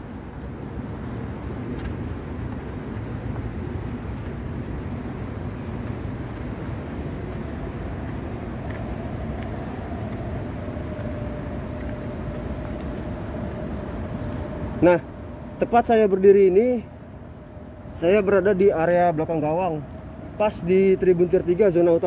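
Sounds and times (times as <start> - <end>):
faint steady hum: 0.0 - 22.0
low rumbling background noise: 0.0 - 22.0.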